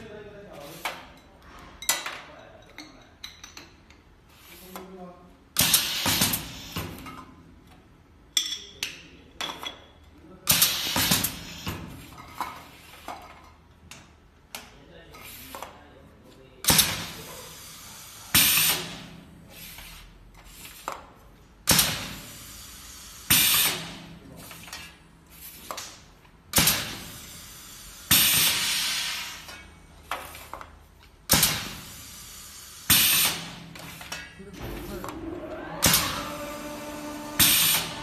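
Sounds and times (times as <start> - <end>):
compressed air hiss bursts: 5.6 - 7.0, 21.9 - 23.9, 26.6 - 29.6, 31.3 - 34.1, 37.4 - 38.0.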